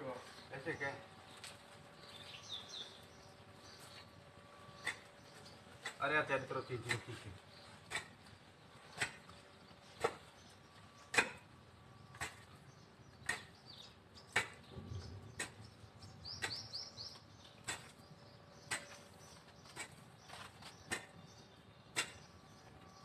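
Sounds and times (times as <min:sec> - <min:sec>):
bird chirping: 0:00.2 - 0:11.2, 0:11.9 - 0:23.0.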